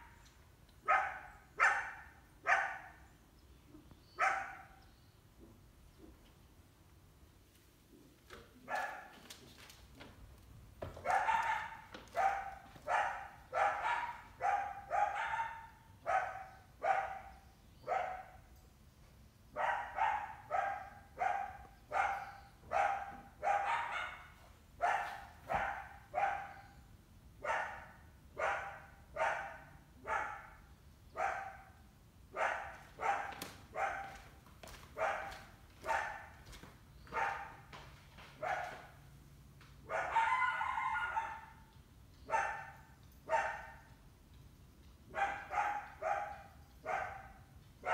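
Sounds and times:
dog barking: 0.8 - 3.0, 4.2 - 4.8, 8.6 - 9.2, 11.0 - 18.4, 19.6 - 26.7, 27.4 - 34.3, 34.9 - 36.5, 37.1 - 37.7, 38.4 - 39.0, 39.8 - 41.7, 42.3 - 43.9, 45.1 - 47.9.

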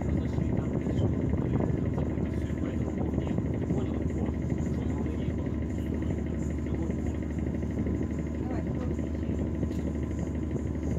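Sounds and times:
ship engine rumble: 0.0 - 10.9.

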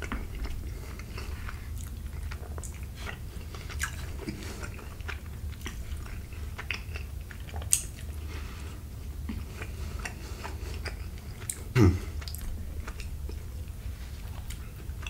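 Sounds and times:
low steady hum: 0.0 - 15.0
person chewing food: 0.0 - 15.0.

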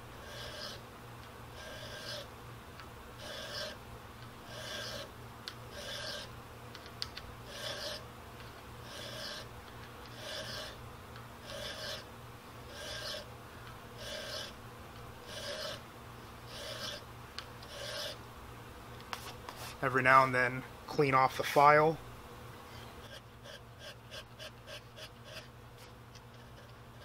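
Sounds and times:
file rasping on steel: 0.1 - 0.8, 1.5 - 2.3, 3.2 - 5.1, 5.7 - 6.3, 7.4 - 8.0, 8.8 - 9.5, 10.1 - 10.8, 11.4 - 12.1, 12.7 - 13.3, 14.0 - 14.6, 15.2 - 15.8, 16.5 - 18.2, 22.8 - 25.5.

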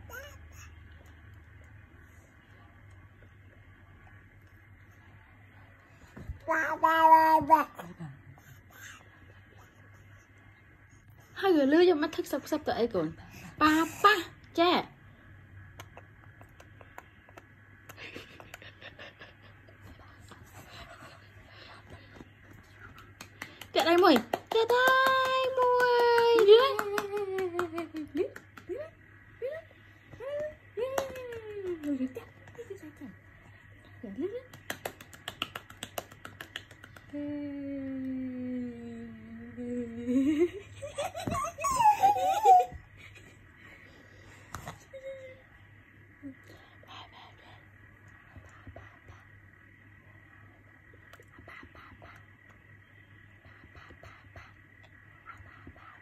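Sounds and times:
low steady hum: 0.0 - 56.0
soft hand claps: 22.8 - 28.8, 34.5 - 37.2
breathy whispering voice: 51.2 - 52.5.

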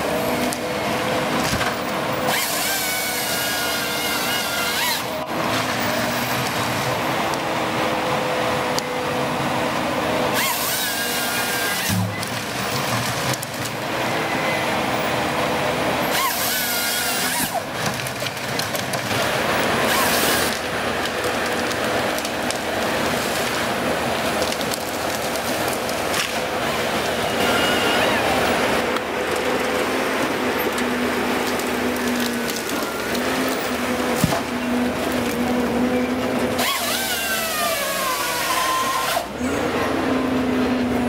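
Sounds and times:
harvester engine and hydraulics: 0.0 - 41.0
harvester head sawing wood: 1.4 - 6.6, 10.3 - 13.5, 15.8 - 26.6, 27.4 - 39.7.

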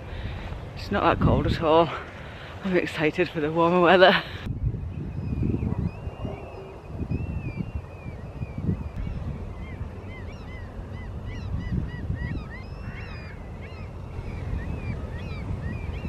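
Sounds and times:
birds piping: 0.0 - 16.0
wind on microphone: 0.0 - 16.0.

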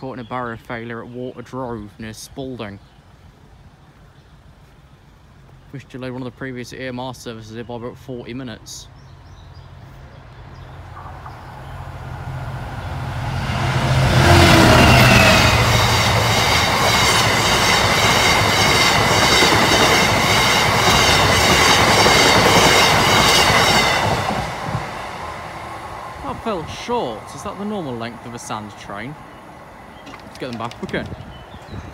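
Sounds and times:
diesel locomotive engine rumble: 0.0 - 31.9
wagon wheels clattering over rails: 29.9 - 31.9.

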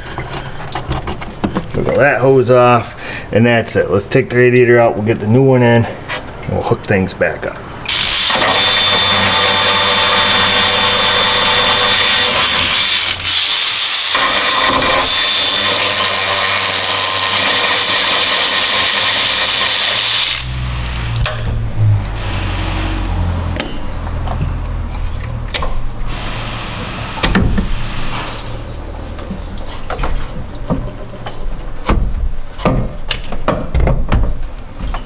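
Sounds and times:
power ratchet whirring: 7.9 - 21.4
low rumble: 20.4 - 29.6.

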